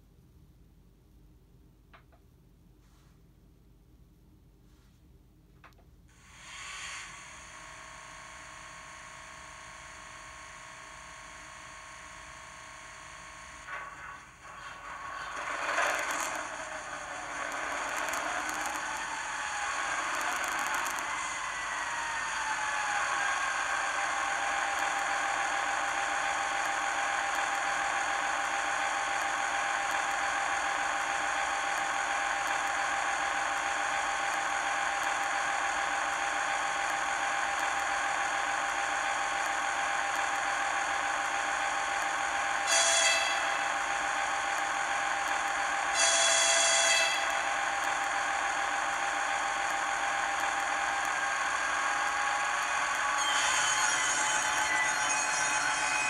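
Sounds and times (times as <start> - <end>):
locomotive horn blasts: 42.6 - 43.6, 45.9 - 47.4.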